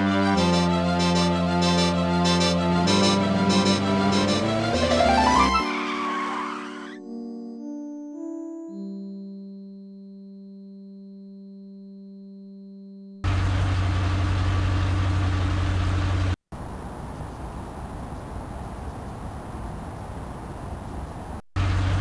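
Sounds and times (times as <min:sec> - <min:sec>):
held musical chord: 0:00.0 - 0:13.3
cartoon car engine sound effect: 0:00.4 - 0:07.0.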